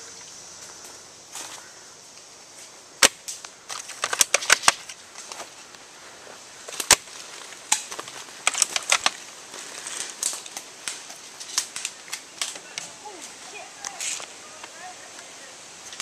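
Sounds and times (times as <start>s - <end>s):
airsoft gunfire clicks and snaps: 3.0s - 5.0s.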